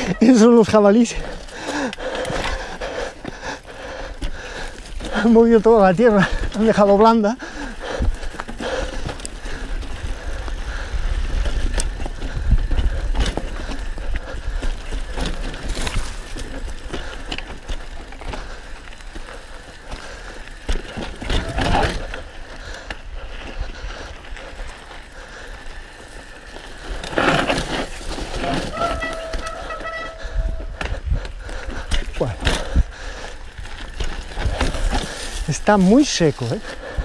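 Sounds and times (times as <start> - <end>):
bike rattling and clicking: 0.0 - 37.0
tyres crunching over dirt and stones: 0.0 - 37.0
wind rumble on microphone: 9.5 - 16.9, 28.3 - 35.5.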